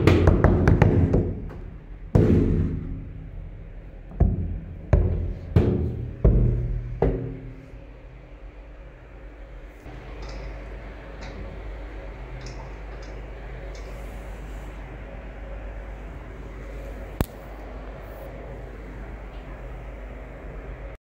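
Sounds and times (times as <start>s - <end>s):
resonant drum strikes: 0.0s - 7.9s.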